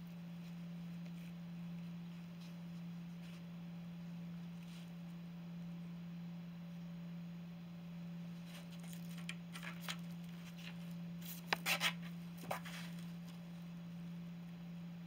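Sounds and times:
crackling scrapes: 8.4s - 13.2s.

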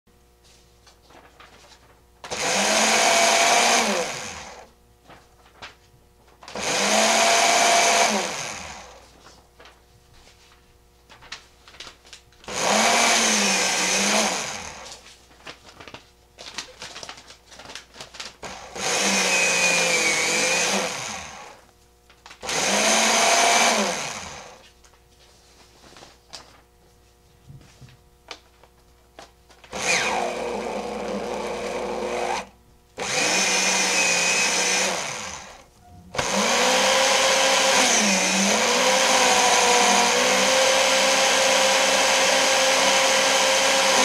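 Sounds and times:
paper shredder motor whining: 2.2s - 5.7s, 6.4s - 9.7s, 12.4s - 15.0s, 15.8s - 24.6s, 29.6s - 44.0s
faint rustles and clicks: 24.6s - 29.7s.

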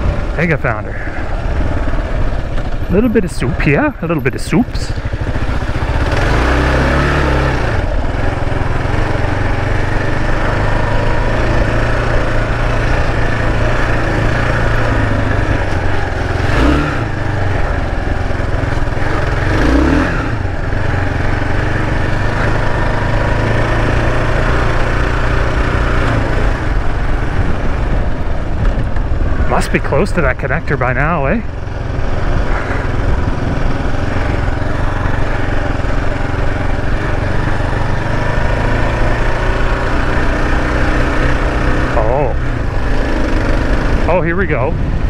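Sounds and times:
motorcycle engine running: 0.0s - 45.0s
wind rush: 44.0s - 45.0s.

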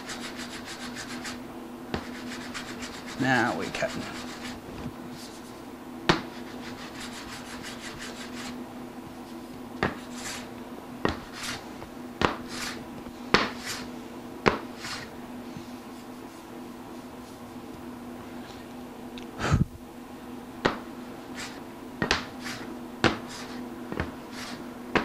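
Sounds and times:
plane blade scraping shaving: 0.0s - 1.4s, 2.0s - 4.6s, 6.3s - 8.6s, 9.9s - 10.5s, 11.1s - 11.6s, 22.4s - 22.7s, 23.3s - 23.6s, 24.3s - 24.6s.

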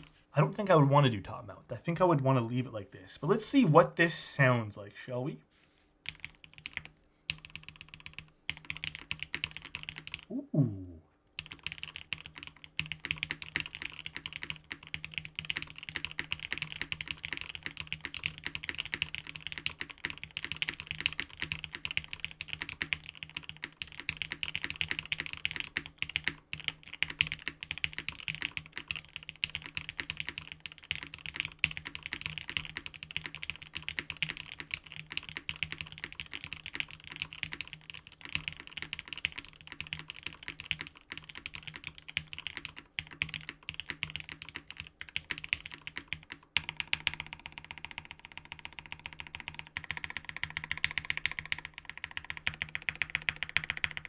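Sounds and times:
fast mechanical keyboard typing: 6.0s - 10.3s, 11.4s - 54.0s.

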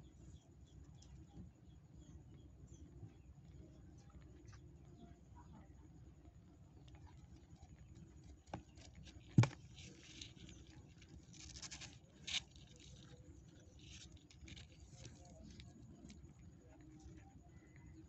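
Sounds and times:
kittens snuffling and suckling: 0.0s - 18.0s.

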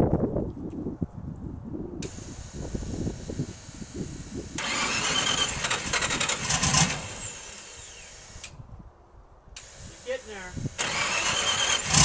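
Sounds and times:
starter motor cranking engine: 4.5s - 8.6s, 9.6s - 12.0s.

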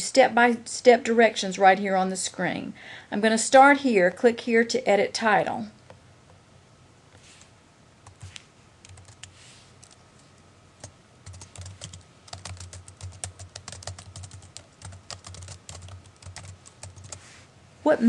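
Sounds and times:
typing on computer keyboard: 8.8s - 10.0s, 10.8s - 17.2s.

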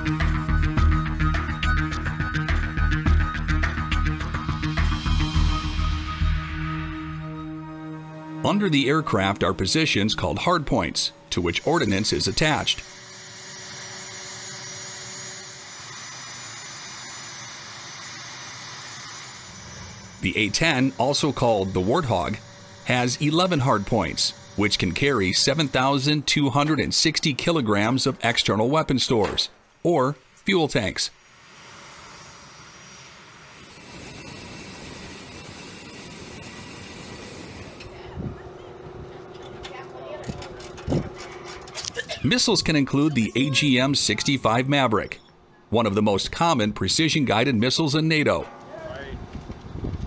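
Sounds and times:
jet engine whining: 0.0s - 29.2s, 31.2s - 50.0s
even hiss: 9.4s - 28.4s, 30.8s - 38.0s
steady low tone: 19.5s - 28.6s.

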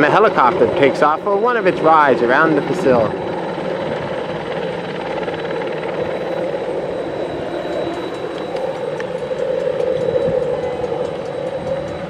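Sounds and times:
helicopter engine and rotor: 0.0s - 12.0s.

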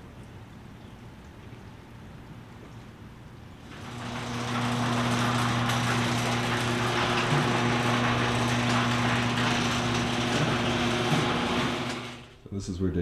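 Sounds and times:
motor droning hum: 3.6s - 12.4s.

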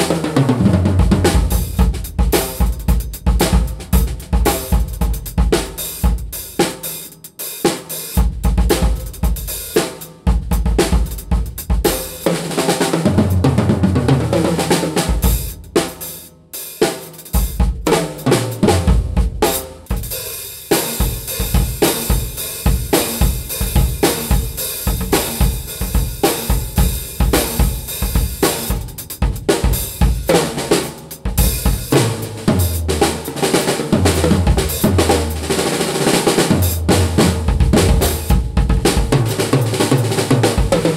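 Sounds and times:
bass drum: 0.0s - 6.3s, 8.2s - 9.5s, 10.3s - 12.3s, 13.0s - 16.0s, 17.4s - 20.3s, 21.0s - 40.9s
snare drum: 0.0s - 40.9s
deep tom runs: 33.9s - 35.6s, 36.4s - 39.5s.

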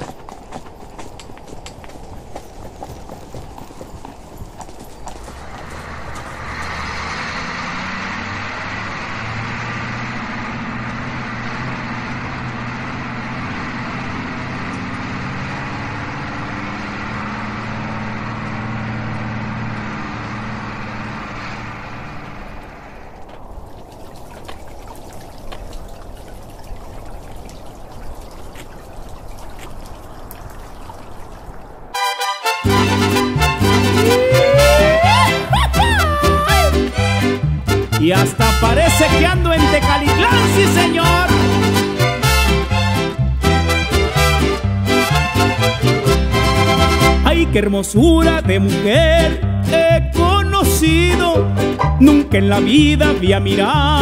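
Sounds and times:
coach driving by: 0.0s - 24.6s, 31.5s - 54.0s
fountain water trickling and splashing: 23.2s - 32.0s
music: 32.0s - 54.0s.

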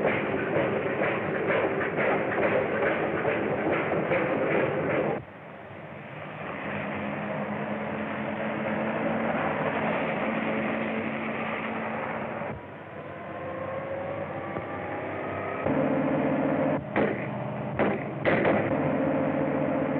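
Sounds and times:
train wheels clattering on rails: 0.0s - 5.3s, 16.8s - 19.1s
car engine drone: 0.0s - 19.9s
road noise: 0.0s - 19.9s.

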